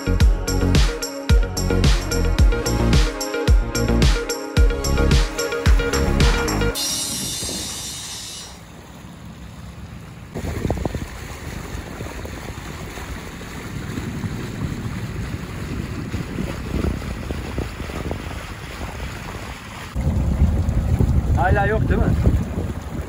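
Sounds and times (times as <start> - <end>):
water rushing along hull: 0.0 - 23.0
wind buffeting microphone: 10.3 - 23.0.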